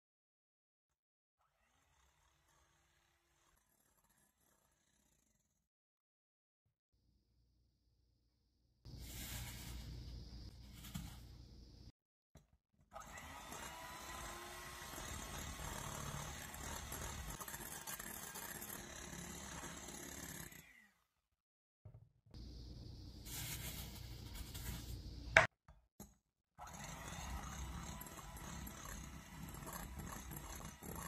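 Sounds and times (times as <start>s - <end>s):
electric hand mixer whipping: 13.0s - 20.5s, 26.6s - 31.0s.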